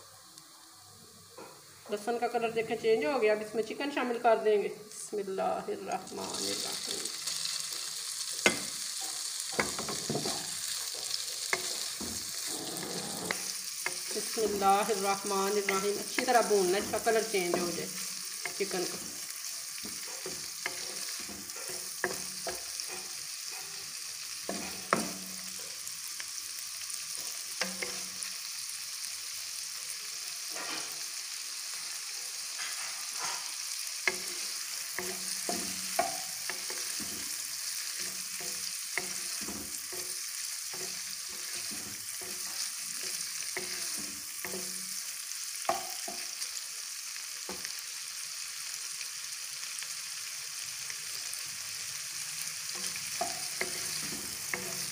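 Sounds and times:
chicken sizzling in pan: 0.0s - 54.9s
spatula scraping pan: 8.3s - 25.7s, 32.5s - 45.0s, 52.8s - 54.9s
spatula knocking pan: 8.4s - 23.8s, 24.4s - 25.6s, 27.2s - 28.2s, 34.1s - 45.0s, 45.6s - 46.3s, 52.8s - 54.9s.

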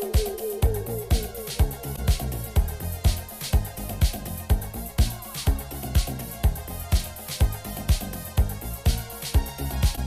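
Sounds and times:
keyboard played live: 0.0s - 2.6s
disco house dance music: 0.0s - 10.0s
kick drum: 0.0s - 10.0s.

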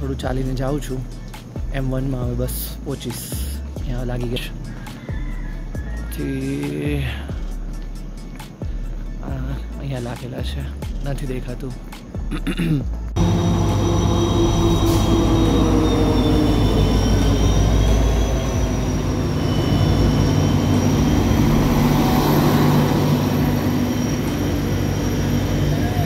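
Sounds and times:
diesel locomotive engine drone: 12.9s - 26.0s
high squeal: 13.2s - 26.0s
train coaches rumbling: 13.2s - 26.0s.

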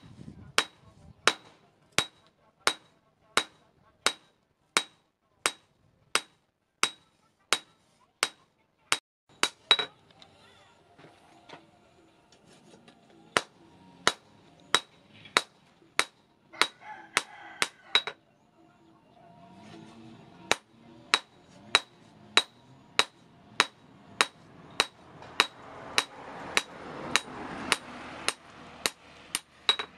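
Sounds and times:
hammer striking steel on anvil: 0.0s - 8.5s, 9.3s - 10.0s, 13.3s - 18.2s, 20.5s - 29.9s.

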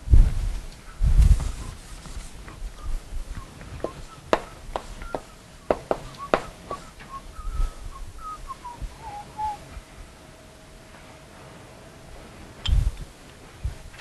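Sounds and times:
chalk tapping on blackboard: 3.8s - 6.8s.

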